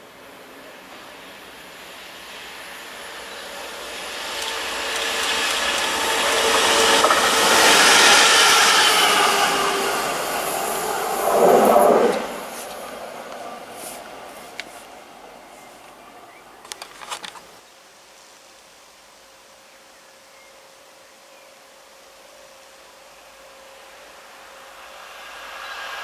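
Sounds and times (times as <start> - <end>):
train wheel noise: 0.0 - 15.5, 23.3 - 26.0
diesel locomotive passing: 0.0 - 16.6, 22.1 - 26.0.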